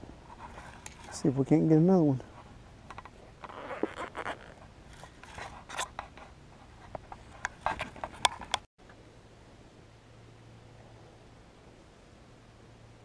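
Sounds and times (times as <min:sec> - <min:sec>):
fishing gear clicks and scrapes: 0:02.9 - 0:08.7.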